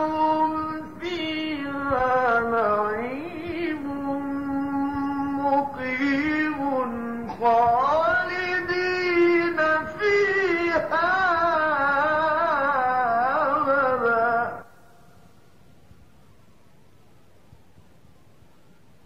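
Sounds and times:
man reciting melodically: 0:00.0 - 0:14.9.

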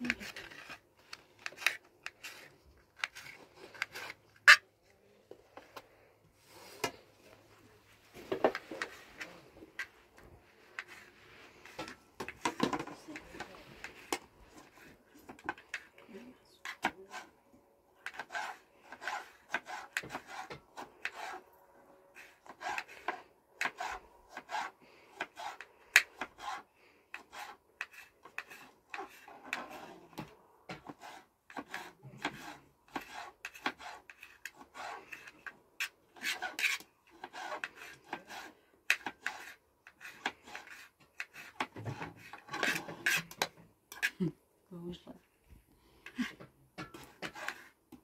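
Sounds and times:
hand scraping hard surface: 0:00.0 - 0:04.7, 0:05.4 - 0:16.0, 0:18.0 - 0:21.5, 0:22.1 - 0:44.2, 0:45.9 - 0:48.0.

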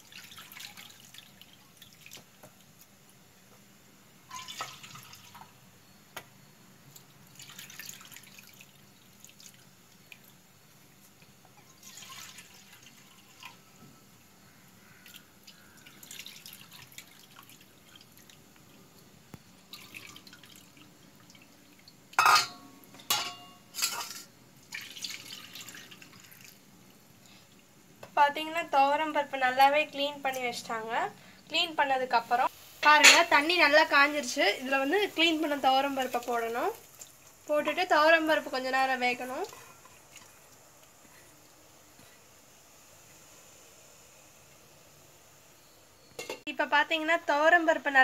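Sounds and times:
water splashing in a bowl: 0:00.0 - 0:02.4, 0:04.3 - 0:05.5, 0:06.9 - 0:10.4, 0:11.0 - 0:13.6, 0:15.0 - 0:18.8, 0:19.7 - 0:22.5, 0:23.8 - 0:26.7, 0:35.0 - 0:40.6
steel bowls clanking: 0:22.2 - 0:24.3, 0:32.9 - 0:33.3.

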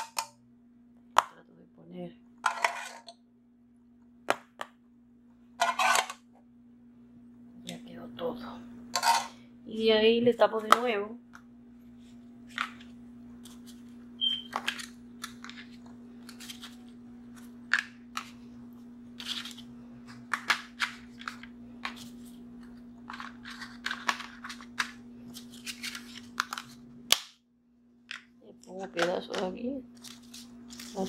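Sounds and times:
steady low hum: 0:00.0 - 0:31.0
foil pan crinkling: 0:14.6 - 0:18.4, 0:19.2 - 0:26.8, 0:29.9 - 0:31.0.

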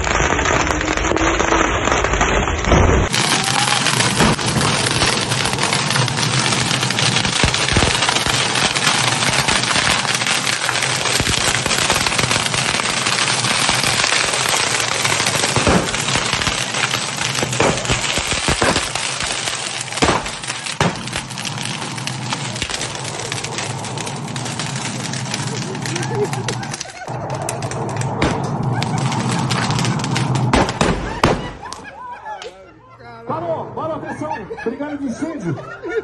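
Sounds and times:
pyrotechnics crackling: 0:00.0 - 0:32.0
loud single pops: 0:15.6 - 0:16.5, 0:17.3 - 0:19.4, 0:20.0 - 0:21.3, 0:30.1 - 0:31.8.

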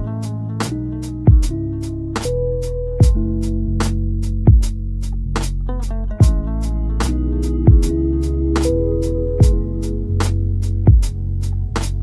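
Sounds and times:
guitar chords: 0:00.0 - 0:12.0
hi-hat ticks: 0:00.0 - 0:12.0
drum beat: 0:01.0 - 0:01.6, 0:03.0 - 0:03.6, 0:04.2 - 0:05.5, 0:06.2 - 0:06.6, 0:07.4 - 0:08.0, 0:09.4 - 0:09.9, 0:10.6 - 0:11.2
kick drum: 0:01.3 - 0:01.6, 0:03.0 - 0:03.3, 0:04.4 - 0:04.8, 0:06.2 - 0:06.6, 0:07.7 - 0:08.0, 0:09.4 - 0:09.7, 0:10.9 - 0:11.2.

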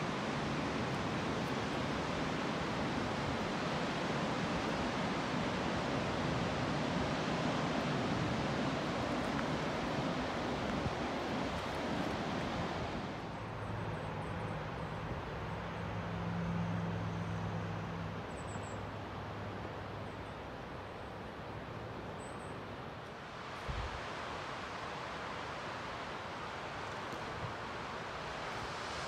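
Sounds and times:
ocean surf: 0:00.0 - 0:13.5, 0:22.8 - 0:29.0.

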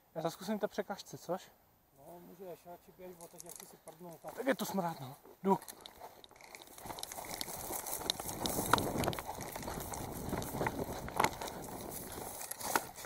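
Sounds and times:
clothing and gear rustling: 0:03.2 - 0:13.0
running footsteps: 0:03.4 - 0:13.0.

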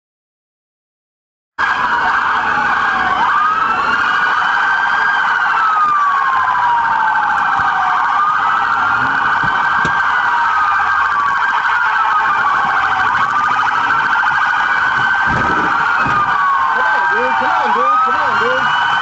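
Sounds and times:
fast warbling siren: 0:01.6 - 0:19.0
police siren wailing: 0:01.6 - 0:19.0.

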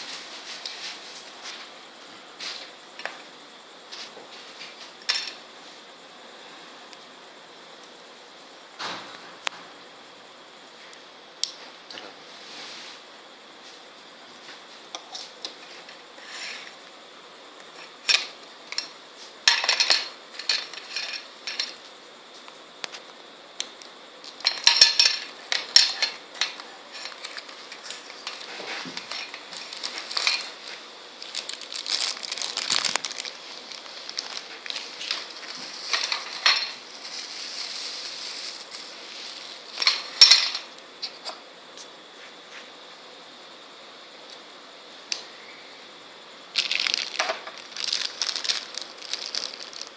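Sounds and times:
plastic packaging crinkling: 0:24.3 - 0:40.4, 0:46.5 - 0:49.9.

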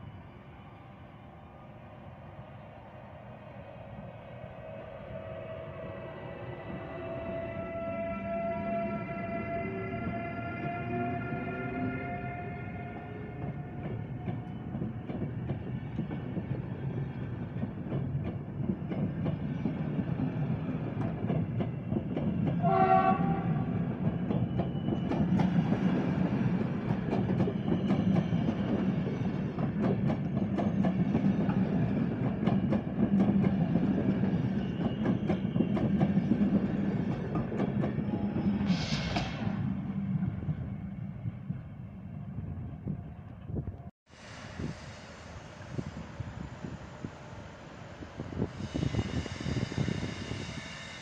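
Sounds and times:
train coaches rumbling past: 0:00.0 - 0:51.0
train horn blast: 0:06.9 - 0:13.8, 0:22.6 - 0:23.8.

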